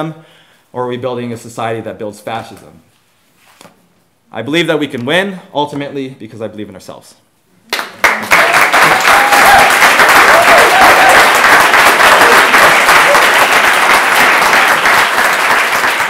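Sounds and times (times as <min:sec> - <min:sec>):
crowd applauding: 0:07.7 - 0:16.0.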